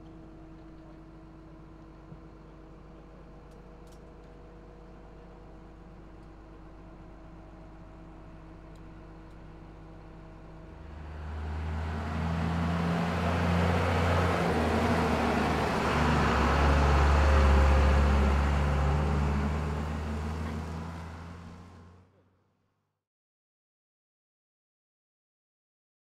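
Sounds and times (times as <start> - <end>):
truck engine driving past: 10.7 - 22.1.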